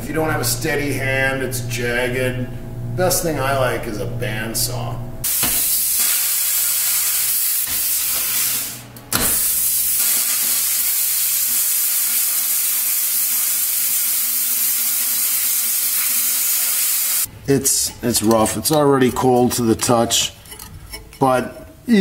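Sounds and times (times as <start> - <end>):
plasma cutter arc hissing: 5.2 - 17.3.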